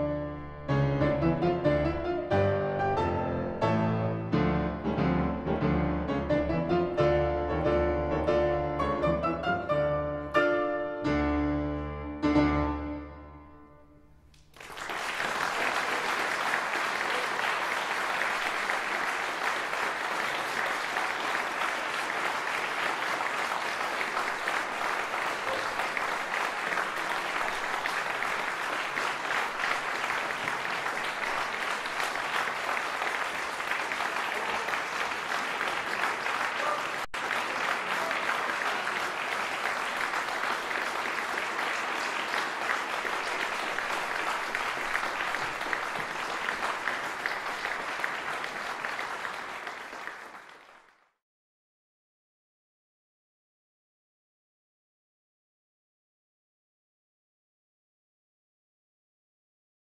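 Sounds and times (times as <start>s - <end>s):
audience applause: 14.4s - 51.1s.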